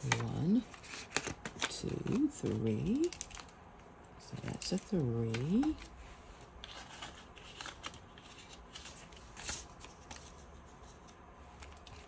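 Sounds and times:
paper banknotes rustling: 0:06.6 - 0:12.0.

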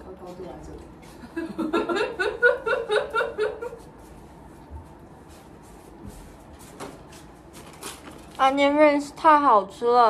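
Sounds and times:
woman laughing: 0:01.2 - 0:03.8.

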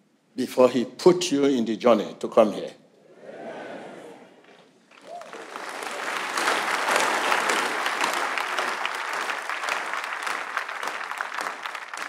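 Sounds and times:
congregation applauding: 0:04.5 - 0:12.0.

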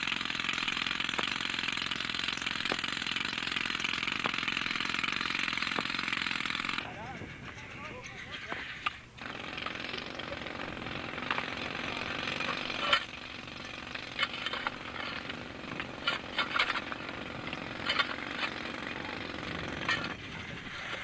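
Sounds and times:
jackhammer rattling: 0:00.0 - 0:21.0.

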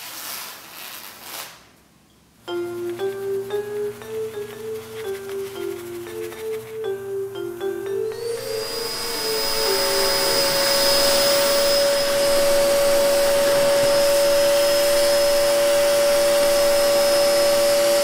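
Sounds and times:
vacuum cleaner motor whine: 0:07.6 - 0:18.0.

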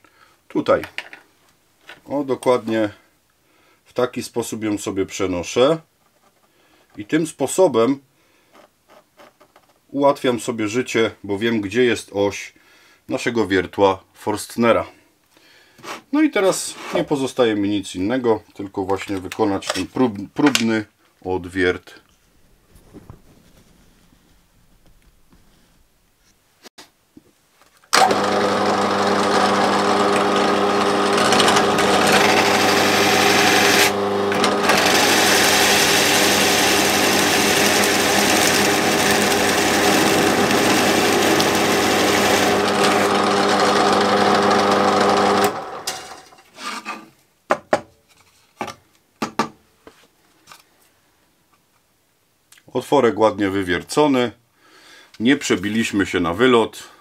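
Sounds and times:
drill bit cutting hiss: 0:28.0 - 0:45.6
drill press motor running: 0:28.0 - 0:46.2.

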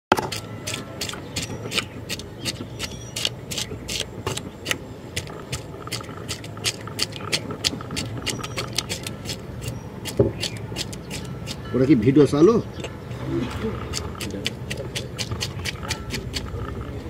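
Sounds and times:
knife scraping fish scales: 0:00.2 - 0:11.6, 0:13.5 - 0:16.6.

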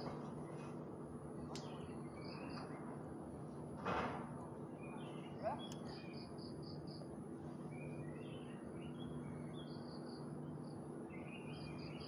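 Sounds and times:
small birds chirping: 0:04.8 - 0:07.1.

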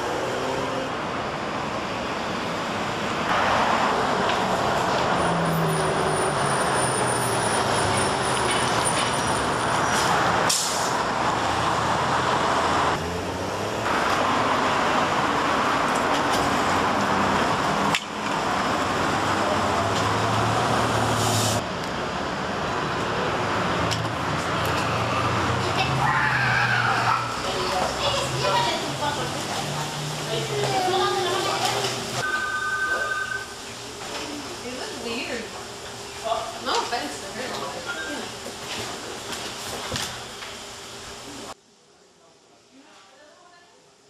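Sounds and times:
cars driving past: 0:00.0 - 0:32.2.

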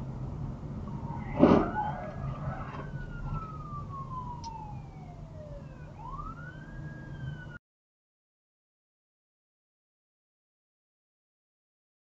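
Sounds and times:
car interior hum: 0:00.0 - 0:07.6
fire engine siren wailing: 0:00.6 - 0:07.6
vehicle crash impact: 0:00.9 - 0:04.3.

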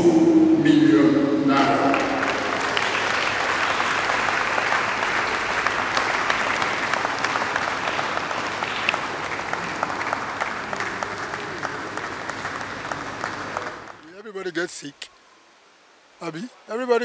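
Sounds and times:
audience applauding: 0:01.6 - 0:14.0.

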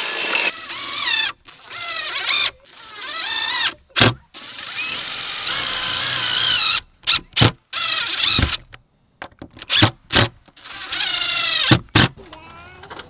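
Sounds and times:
impact driver motor whining: 0:00.0 - 0:08.6, 0:10.6 - 0:12.2.

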